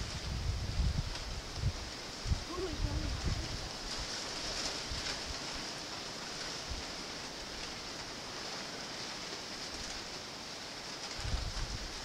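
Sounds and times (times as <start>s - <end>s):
wind buffeting microphone: 0.0s - 5.8s, 11.0s - 12.0s
steady high hiss: 0.0s - 12.0s.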